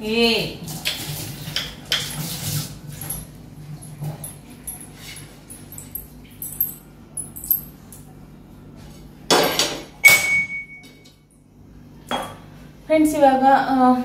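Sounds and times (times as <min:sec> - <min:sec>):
sharp metal clang: 0:09.3 - 0:11.0.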